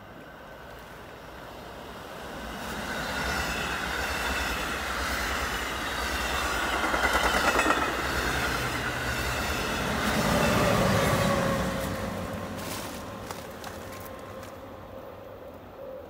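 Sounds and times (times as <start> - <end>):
train wheels rumbling and clattering: 2.5 - 14.6.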